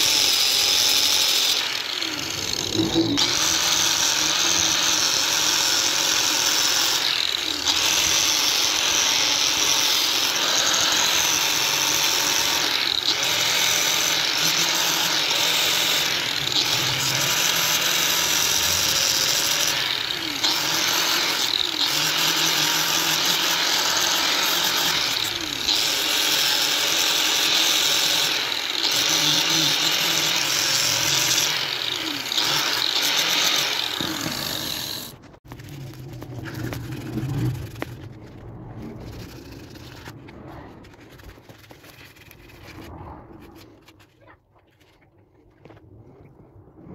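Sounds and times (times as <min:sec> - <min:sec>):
angle grinder grinding metal: 0:00.0 - 0:38.2.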